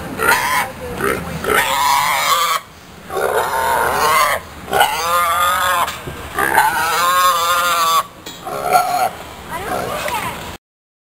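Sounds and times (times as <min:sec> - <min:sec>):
pig squealing: 0:00.2 - 0:10.1.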